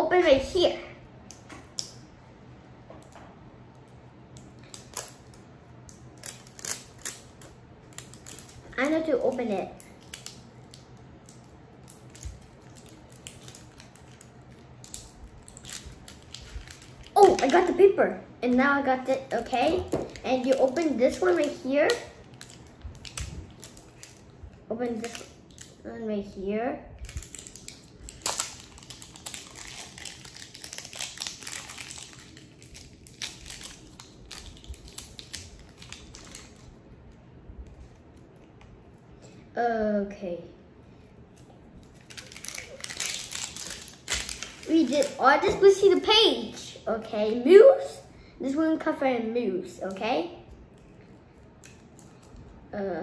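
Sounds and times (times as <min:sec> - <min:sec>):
plastic wrapper crinkling: 0:04.3 - 0:25.8, 0:27.0 - 0:38.8, 0:41.4 - 0:46.2, 0:50.7 - 0:52.5.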